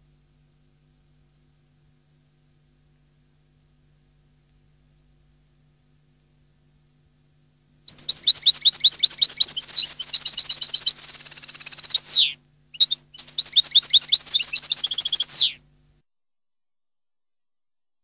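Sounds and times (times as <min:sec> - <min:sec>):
buzzy bird trill: 0:07.9 - 0:15.6
goldfinch twittering song: 0:07.9 - 0:15.6.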